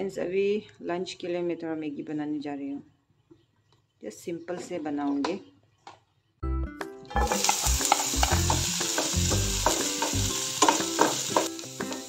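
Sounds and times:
vegetables sizzling in hot oil: 7.2s - 12.0s.

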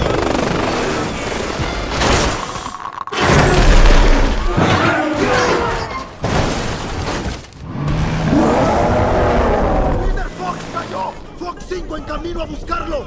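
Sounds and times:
crashing and smashing impacts: 3.2s - 8.3s.

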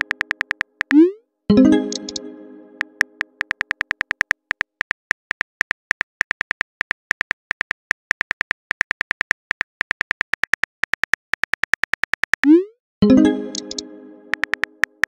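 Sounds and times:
phone keyboard typing clicks: 0.0s - 1.0s, 1.9s - 12.6s, 13.5s - 15.0s.

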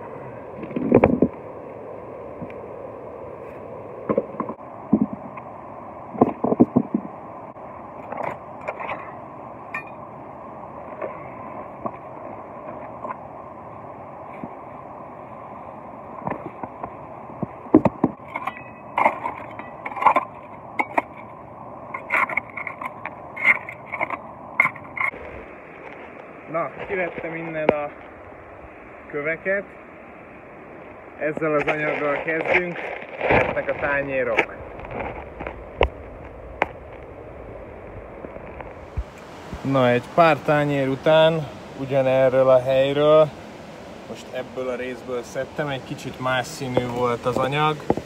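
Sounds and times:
stones knocking and scraping: 6.1s - 7.2s, 16.2s - 28.1s, 31.3s - 37.1s, 46.6s - 48.0s
metal scraping on stone: 18.1s - 25.2s
river rushing: 36.4s - 48.0s.

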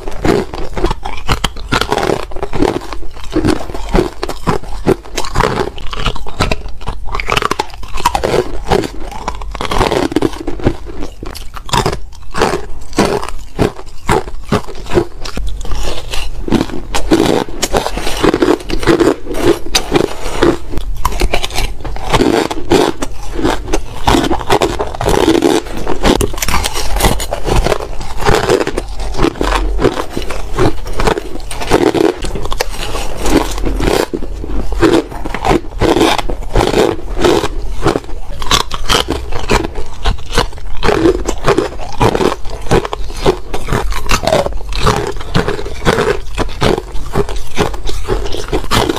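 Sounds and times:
chewing and crunching ice: 0.0s - 48.9s.

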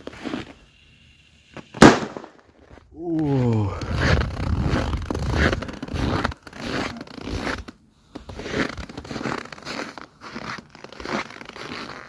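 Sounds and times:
footsteps crunching through snow: 2.7s - 12.0s.

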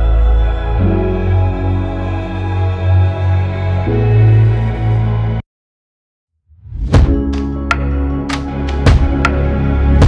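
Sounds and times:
background music with low chords: 6.7s - 10.0s.

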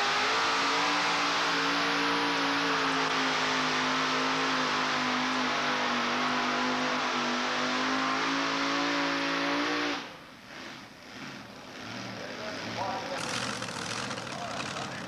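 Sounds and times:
engine at full throttle: 0.0s - 15.0s.

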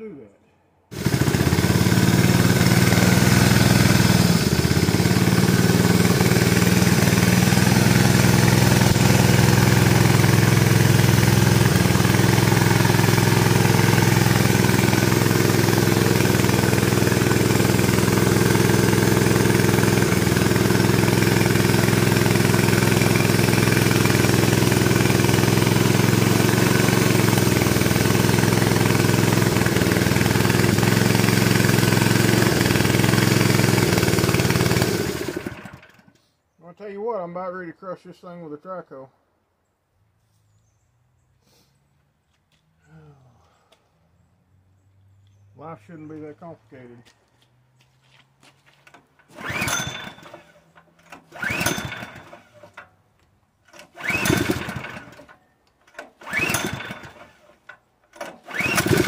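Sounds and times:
small engine running steadily: 0.9s - 36.2s, 48.7s - 52.9s, 53.7s - 59.0s.

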